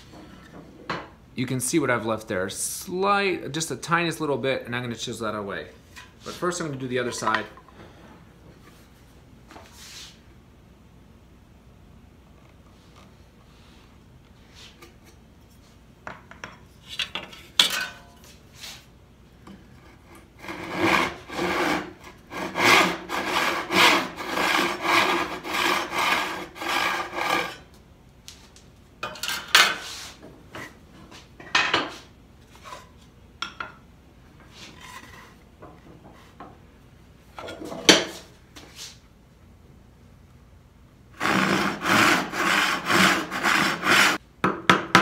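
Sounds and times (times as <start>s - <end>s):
hand saw cutting wood: 20.0s - 27.7s, 41.2s - 44.2s.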